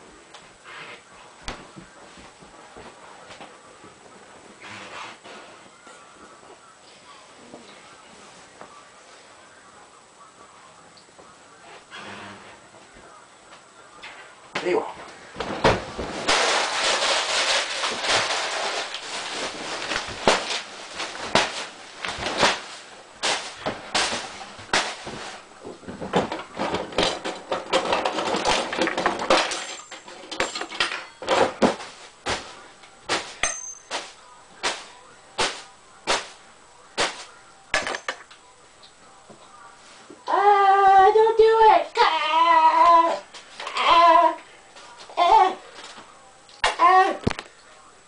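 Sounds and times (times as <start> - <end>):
plastic bag rustling: 15.4 - 30.4.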